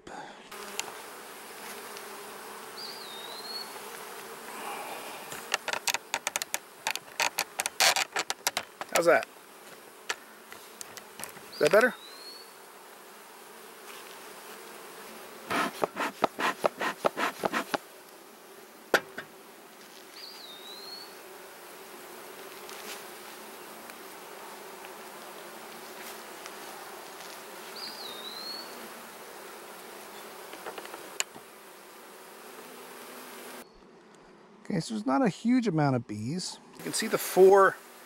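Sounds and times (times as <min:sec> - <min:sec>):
bees buzzing: 0:00.1 - 0:38.0
quick knocks: 0:15.5 - 0:17.8, 0:18.9 - 0:19.3.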